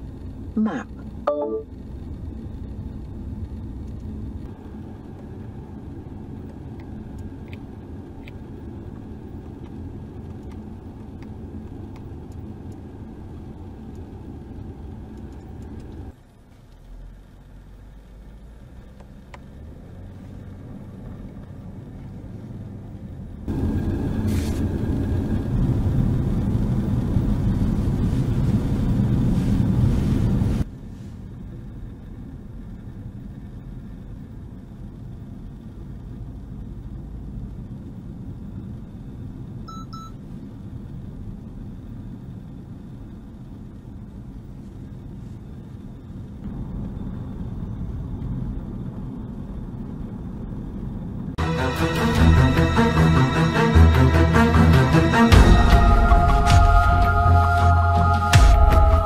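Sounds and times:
road and tyre noise in car: 0:00.0 - 0:59.0.

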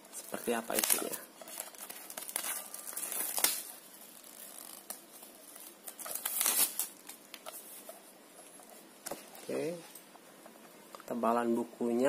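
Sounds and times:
plastic wrap crinkling and tearing: 0:00.2 - 0:07.8.

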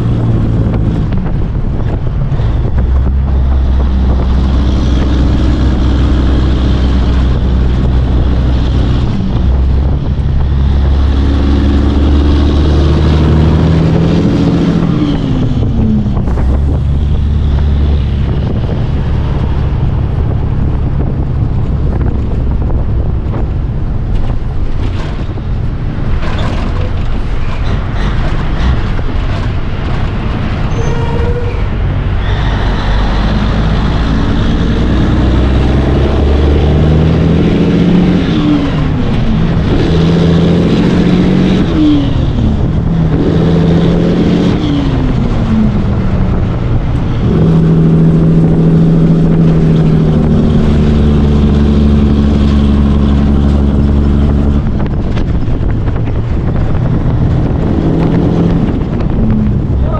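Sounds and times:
truck diesel engine pulling away: 0:00.0 - 0:59.9.

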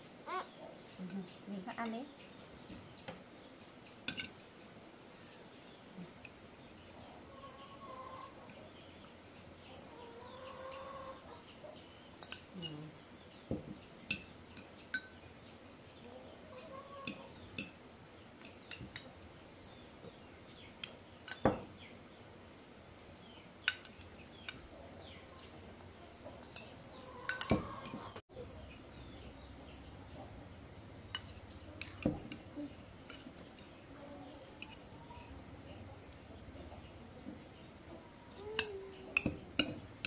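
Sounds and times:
chickens clucking: 0:06.9 - 0:11.9, 0:16.0 - 0:17.6, 0:24.3 - 0:28.7, 0:29.3 - 0:39.8.

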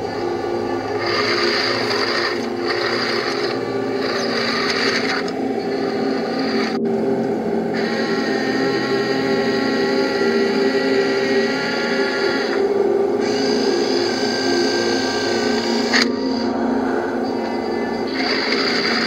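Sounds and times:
small electric motors whining: 0:00.8 - 0:06.8, 0:07.7 - 0:16.6, 0:17.7 - 0:19.0.

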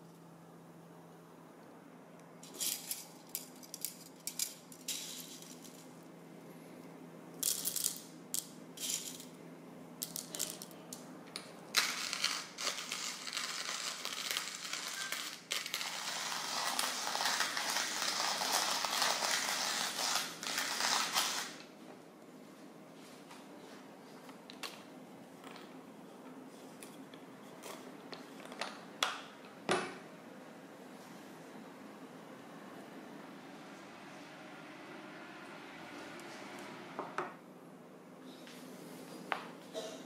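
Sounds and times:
coffee beans rattling into grinder: 0:02.4 - 0:06.0, 0:07.4 - 0:09.4, 0:10.0 - 0:11.0, 0:11.7 - 0:21.6
grinder crunching beans: 0:10.0 - 0:21.7.

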